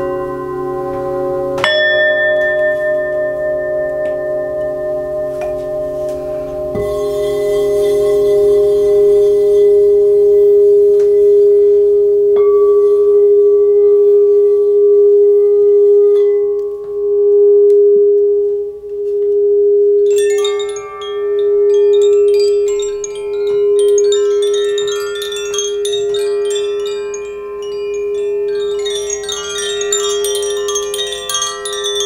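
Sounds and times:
singing bowl strike: 0.0s - 11.6s
singing bowl ringing: 0.0s - 32.0s
wooden tube chimes ringing: 20.0s - 32.0s.

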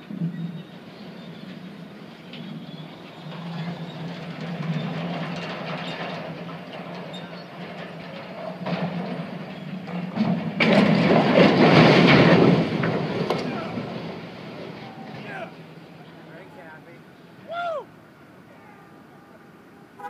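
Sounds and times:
diesel engine rumbling: 0.0s - 20.0s
metal tower crashing down: 4.7s - 15.5s.

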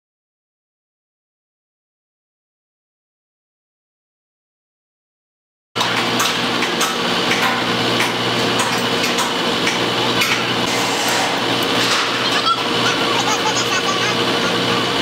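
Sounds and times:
machinery engine humming: 5.8s - 15.0s.

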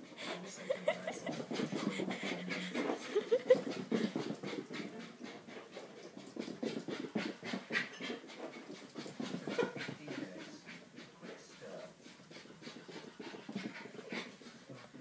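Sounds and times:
dog panting: 0.0s - 15.0s.

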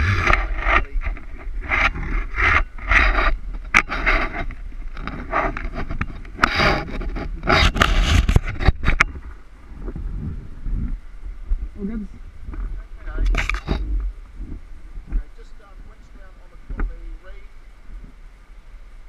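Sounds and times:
rope scraping against pulley: 0.0s - 9.2s.

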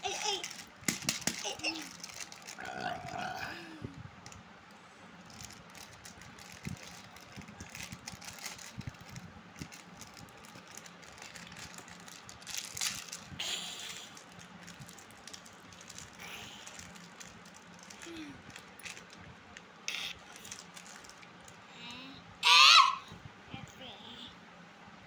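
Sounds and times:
plastic candy packet crinkling: 0.0s - 3.3s, 5.2s - 21.6s.

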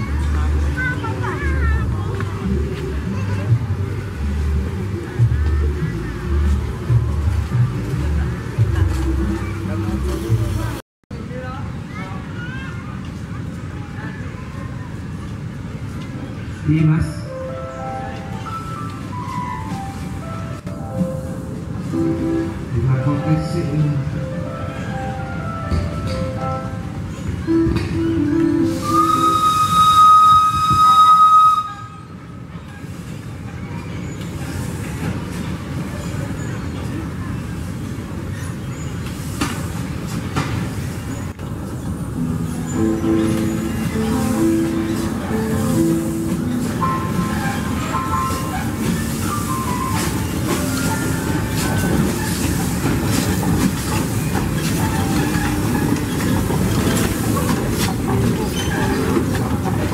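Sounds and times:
train rolling rumble: 0.0s - 59.9s
steam locomotive whistle: 28.7s - 32.2s
train wheels clattering on rails: 32.2s - 59.9s.

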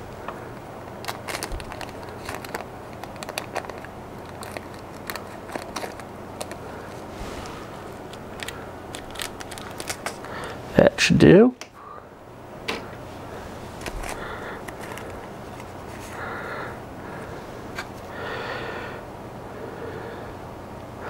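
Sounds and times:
plastic bag crinkling: 0.9s - 10.6s, 13.2s - 16.2s.

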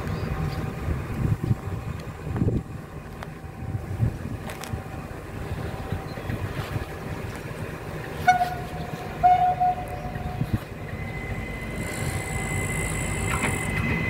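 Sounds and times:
low train rumble: 0.0s - 14.0s
steady high whine: 0.2s - 14.0s
train horn blasts: 8.2s - 10.5s.

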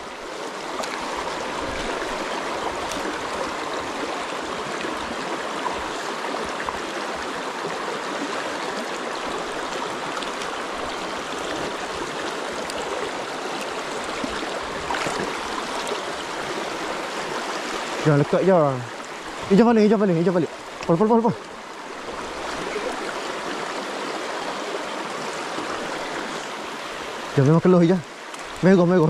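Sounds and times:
river water rushing: 0.0s - 29.0s.

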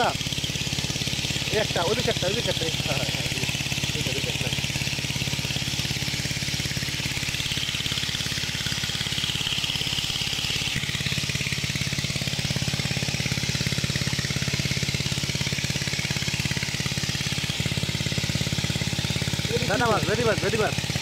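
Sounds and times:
small pump engine running: 0.0s - 21.0s.

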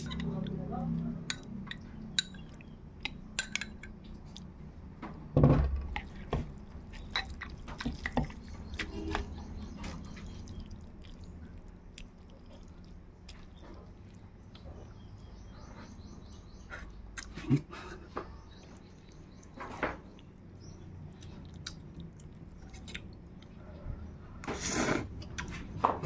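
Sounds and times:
utensils clinking on dishes: 0.0s - 0.5s, 1.3s - 4.0s.

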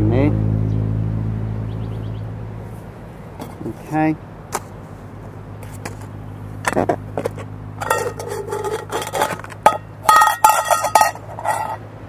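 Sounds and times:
metal pot scraping on plastic plate: 6.7s - 11.8s.

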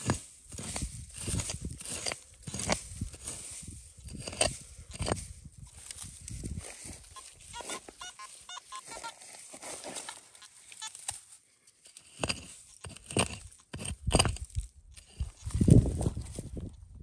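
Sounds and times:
digging tool striking dry soil: 0.0s - 8.0s, 10.8s - 16.4s
short high-pitched chirps: 6.9s - 9.3s.

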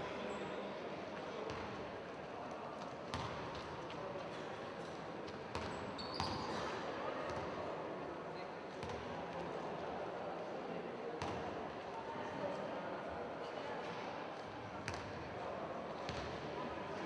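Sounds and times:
murmur of voices: 0.0s - 17.0s
ball bouncing on court floor: 3.1s - 3.4s
brief high squeak: 6.0s - 6.8s.

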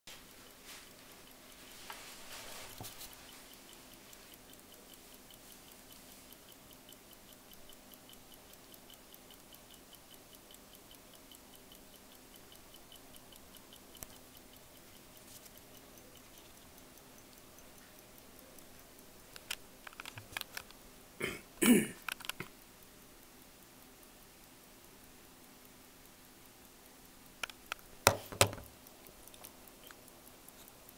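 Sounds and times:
pocket watch ticking: 0.1s - 20.8s, 22.0s - 30.9s
watch clicks: 0.8s - 20.8s, 22.0s - 22.6s, 27.2s - 30.9s.

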